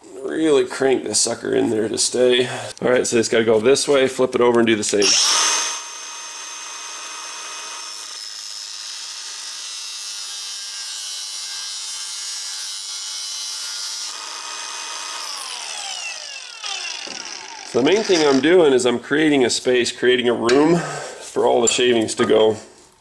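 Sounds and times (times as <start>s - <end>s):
angle grinder cutting steel: 5.0s - 18.6s.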